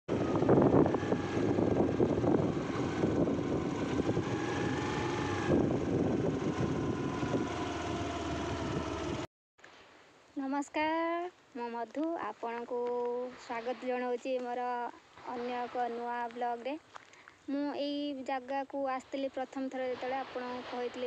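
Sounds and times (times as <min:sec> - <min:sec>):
road and wind noise: 0:00.1 - 0:09.3
small motorbike running: 0:00.1 - 0:09.3.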